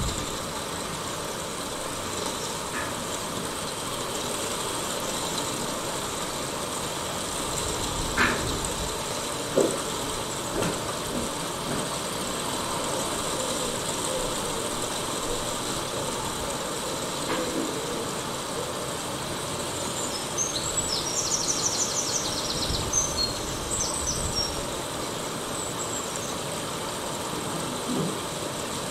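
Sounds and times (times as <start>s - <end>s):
bicycle rolling on pavement: 0.0s - 26.8s
bird chirping and trilling: 19.8s - 24.7s.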